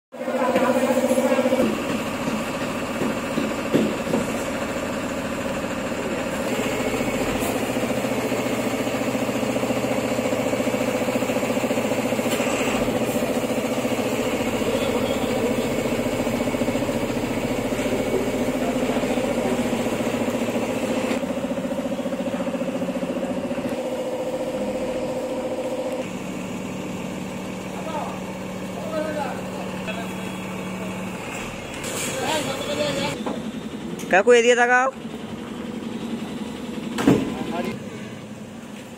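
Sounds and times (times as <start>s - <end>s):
truck engine idling: 0.2s - 38.9s.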